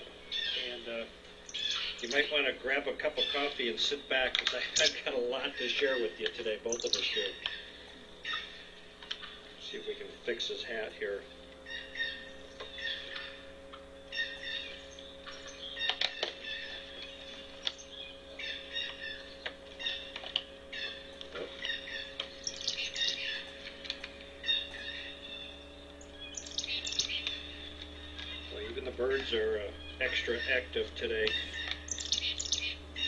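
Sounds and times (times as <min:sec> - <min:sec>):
birds chirping and calling: 0:00.0 - 0:33.0
faint steady hum: 0:00.0 - 0:33.0
sharp clicks: 0:15.3 - 0:17.9.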